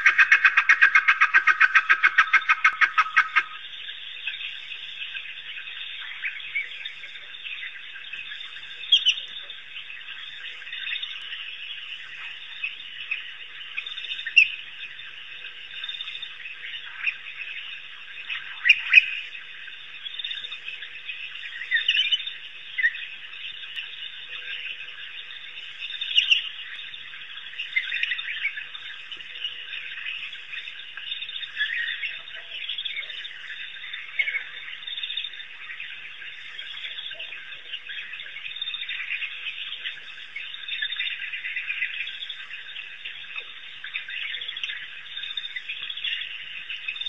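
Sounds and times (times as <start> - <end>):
wild dogs chirping: 0.0 - 3.7.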